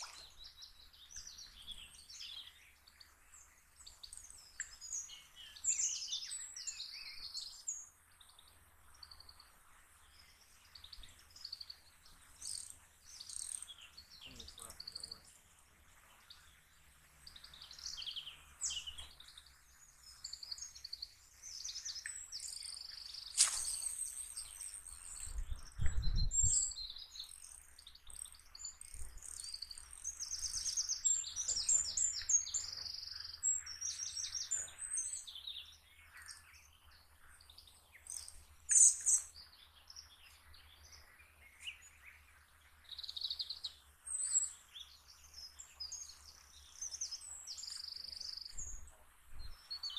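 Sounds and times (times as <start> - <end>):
songbirds singing and chirping: 0.0 - 49.9
sharp click: 23.4 - 23.8.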